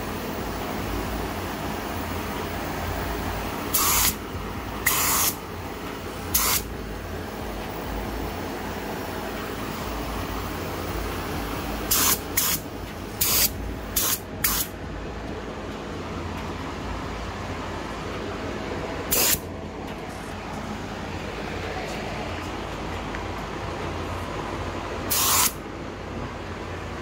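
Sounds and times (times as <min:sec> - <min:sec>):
steady low hum: 0:00.0 - 0:27.0
paint spray gun hissing: 0:03.7 - 0:04.2, 0:04.8 - 0:05.4, 0:06.2 - 0:06.7, 0:11.9 - 0:14.7, 0:19.1 - 0:19.4, 0:25.1 - 0:25.6.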